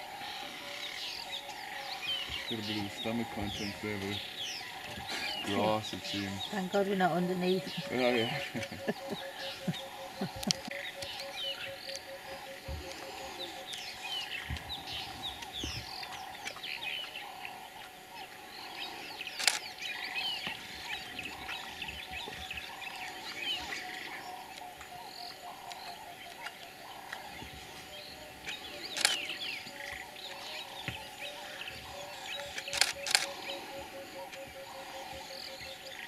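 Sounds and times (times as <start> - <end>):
birds chirping and calling: 0.0 - 36.0
sharp clicks: 32.4 - 33.4.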